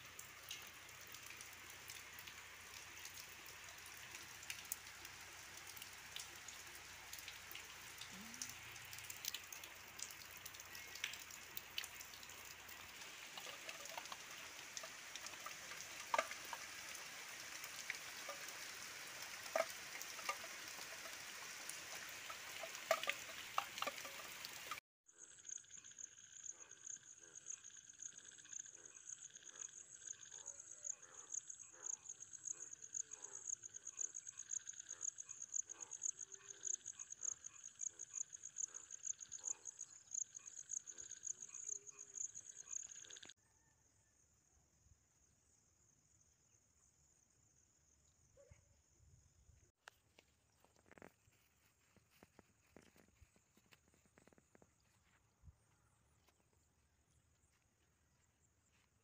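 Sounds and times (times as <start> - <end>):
rain on wet ground and leaves: 0.0 - 24.8
water drips: 0.0 - 24.8, 49.8 - 55.2.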